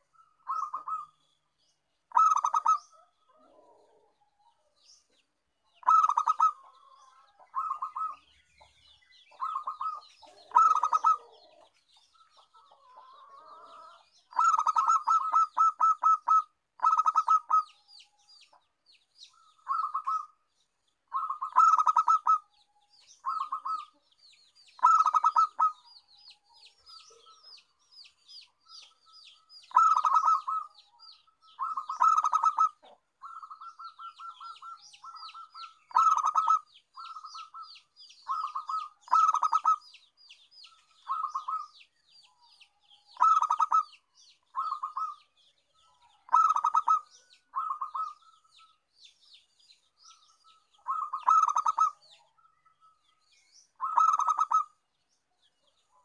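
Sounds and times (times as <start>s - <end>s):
dove staccato cooing: 0.0s - 1.2s, 2.1s - 4.2s, 5.8s - 17.8s, 19.5s - 20.4s, 21.1s - 22.5s, 23.1s - 24.0s, 24.8s - 25.9s, 29.7s - 39.8s, 40.8s - 41.7s, 43.2s - 45.2s, 46.0s - 48.5s, 50.8s - 52.1s, 53.8s - 54.8s
faint high chirping: 21.0s - 56.0s.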